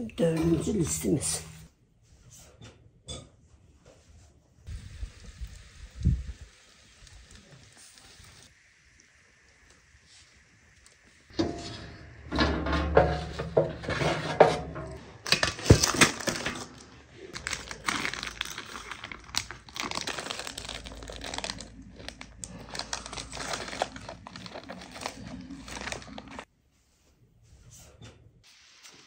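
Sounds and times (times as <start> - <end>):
metal baking tray clanking: 11.3 - 15.0
parchment paper crinkling: 15.2 - 26.5.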